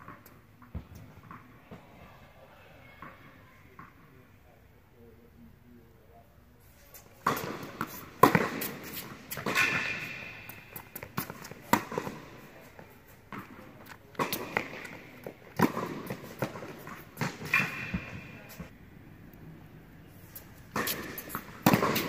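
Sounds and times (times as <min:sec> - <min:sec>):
tennis ball pops in a hall: 0:07.2 - 0:08.8, 0:14.2 - 0:18.4, 0:20.7 - 0:22.0.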